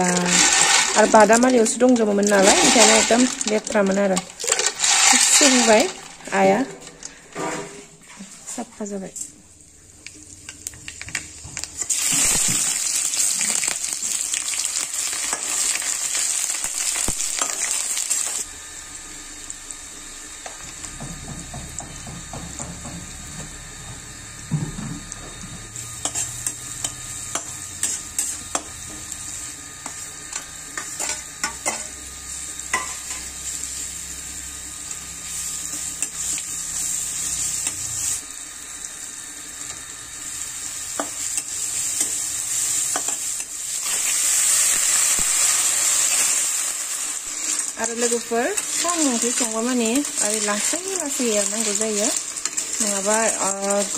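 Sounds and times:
spatula scraping a wok: 0.0s - 1.3s, 2.2s - 3.6s, 4.3s - 8.5s, 25.7s - 33.9s
oil sizzling in a wok: 0.0s - 53.9s.

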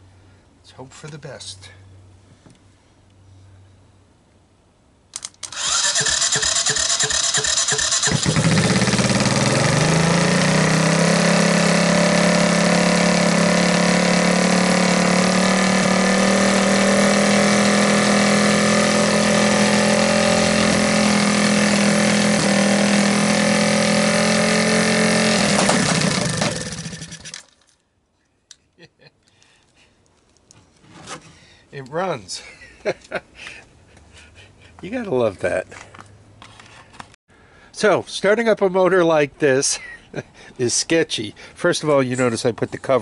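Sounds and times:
engine starter cranking: 5.2s - 11.8s, 25.3s - 27.7s
engine running with a rumble: 5.6s - 27.4s.

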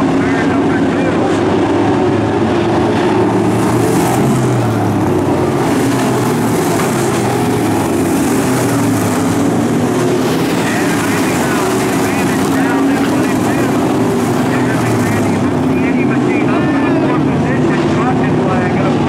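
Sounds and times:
race car engines droning: 0.0s - 19.0s.

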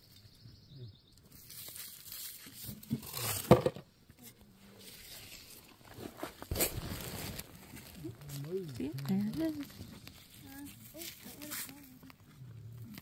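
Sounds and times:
crunching in gravelly soil: 4.7s - 13.0s.

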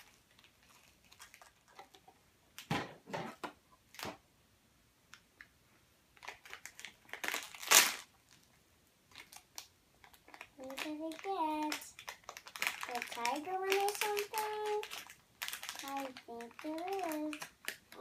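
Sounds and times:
foil wrapper crinkling: 0.0s - 2.0s, 6.2s - 8.5s, 9.1s - 18.0s.

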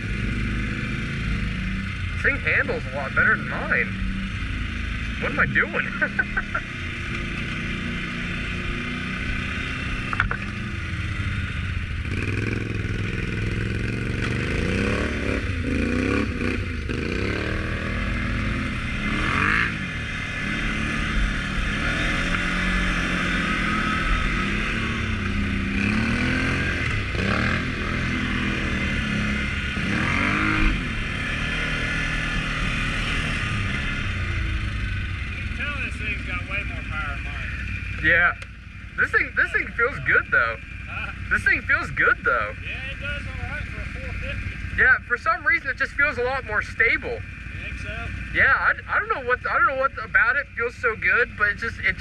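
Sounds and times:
atv engine revving: 0.0s - 52.0s
knocks and rattles over bumps: 10.0s - 10.6s.

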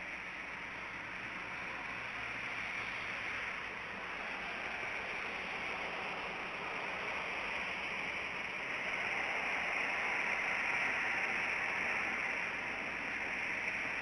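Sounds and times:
steady outdoor hiss: 0.0s - 14.0s.

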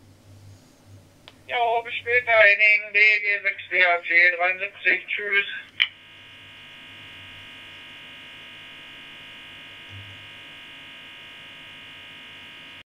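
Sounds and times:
high-pitched electronic buzz: 4.8s - 12.8s.

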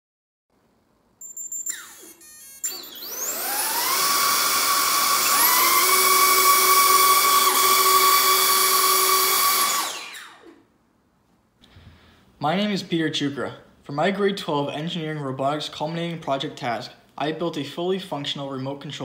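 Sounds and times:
electric motor whine: 1.6s - 10.6s.

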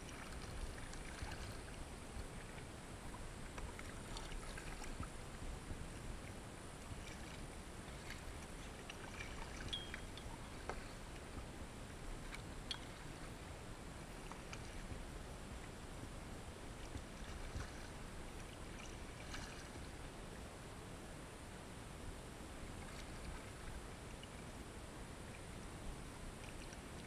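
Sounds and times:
paddle splashing in water: 0.0s - 6.0s, 6.8s - 11.5s, 14.0s - 15.1s, 16.7s - 20.0s
water washing along hull: 0.0s - 20.1s.

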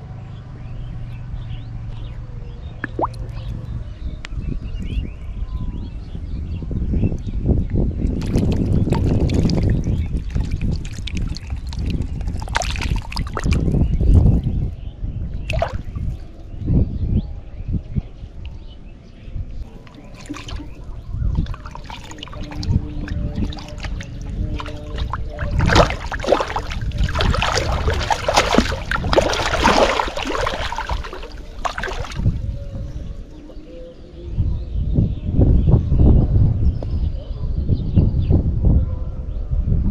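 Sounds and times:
fish thrashing and splashing water: 2.8s - 3.5s, 8.1s - 13.8s, 15.4s - 16.2s, 19.7s - 32.5s
steady low rumble: 13.4s - 37.1s.

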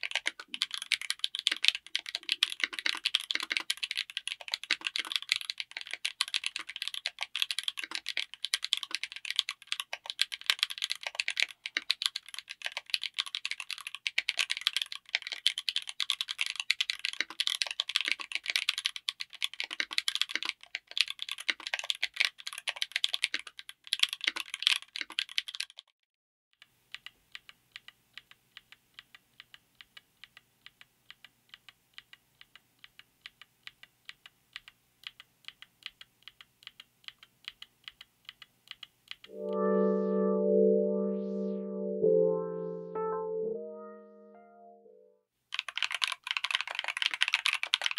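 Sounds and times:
mechanical keyboard typing: 0.0s - 25.8s, 45.6s - 47.9s.

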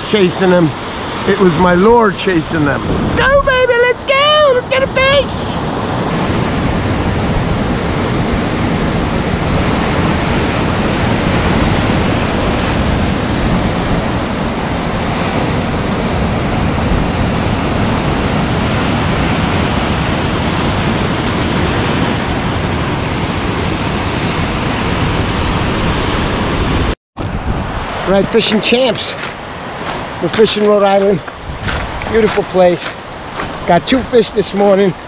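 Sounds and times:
ocean surf breaking over rocks: 0.0s - 35.0s.

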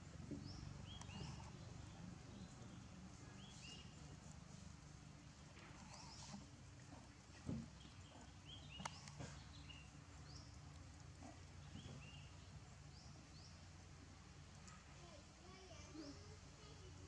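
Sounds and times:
low steady hum: 0.0s - 17.0s
soft knocks: 7.4s - 7.8s.

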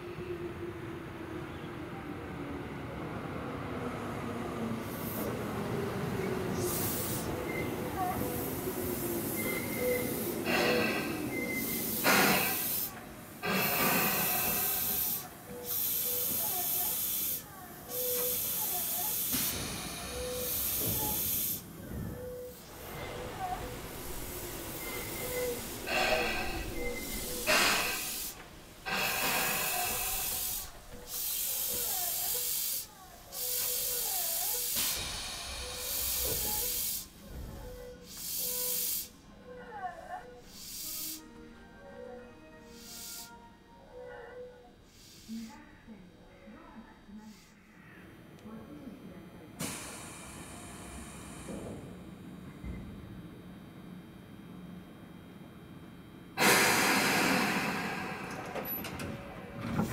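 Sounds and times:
train air hissing: 4.8s - 39.5s, 40.4s - 41.4s, 42.6s - 43.6s, 44.8s - 45.6s, 49.6s - 52.0s, 56.4s - 59.9s.

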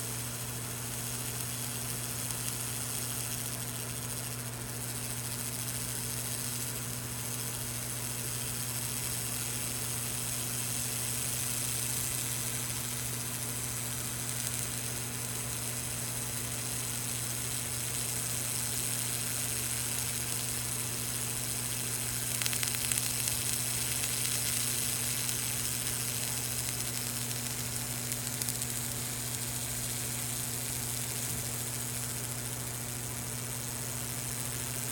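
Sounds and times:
laser cleaner hissing: 0.0s - 34.9s
short crackle: 22.0s - 33.0s.

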